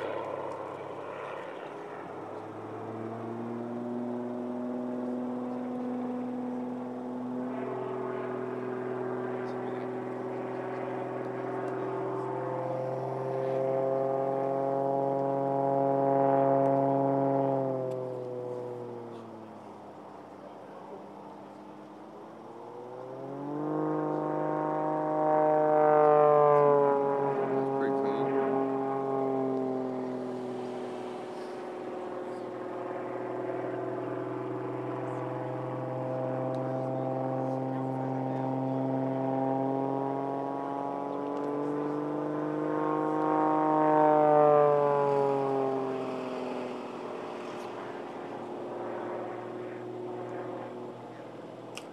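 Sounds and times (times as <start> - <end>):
airplane engine and propeller: 0.0 - 51.9.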